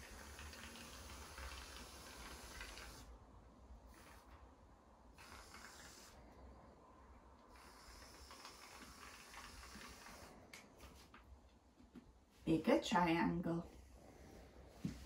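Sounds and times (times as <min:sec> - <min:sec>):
aerosol can hissing: 0:05.2 - 0:06.2, 0:07.5 - 0:10.3.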